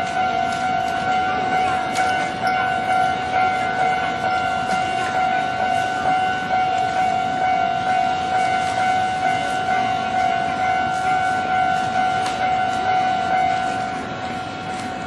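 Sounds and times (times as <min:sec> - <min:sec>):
level crossing warning bell: 0:00.0 - 0:15.0.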